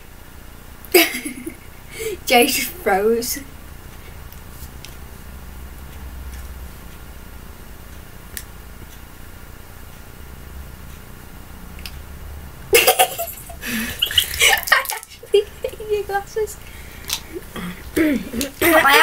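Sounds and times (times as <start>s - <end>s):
low room hum: 0.0s - 19.0s
boys laughing loudly: 0.9s - 2.2s, 12.7s - 16.5s, 17.3s - 19.0s.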